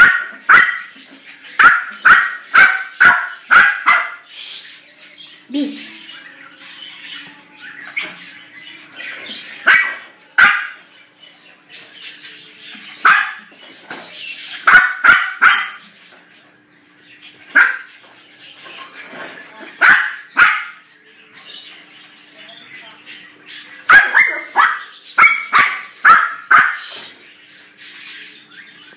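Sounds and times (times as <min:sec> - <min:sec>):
puppy barking high-pitched yaps: 0:01.6 - 0:04.2, 0:09.7 - 0:10.8, 0:14.7 - 0:15.8, 0:19.8 - 0:20.8, 0:23.9 - 0:26.8.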